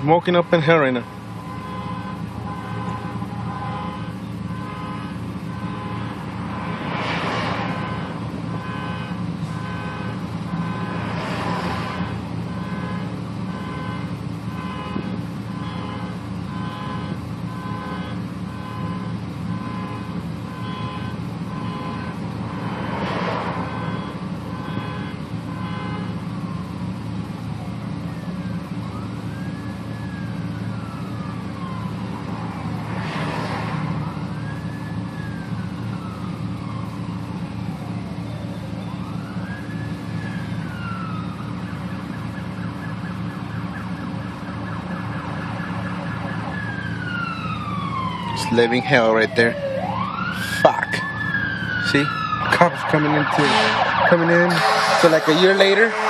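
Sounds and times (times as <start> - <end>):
engine hum: 0.0 - 56.0
siren wailing: 0.2 - 26.8, 27.4 - 56.0
vehicles passing whoosh: 3.2 - 12.7, 21.6 - 24.8, 30.8 - 36.8, 49.6 - 56.0.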